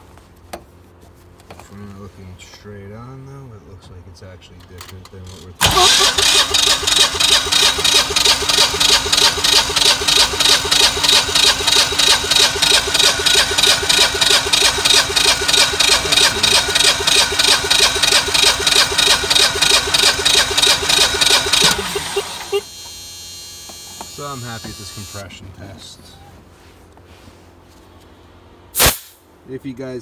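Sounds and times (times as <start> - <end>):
engine cranking on starter: 5.0 - 22.7.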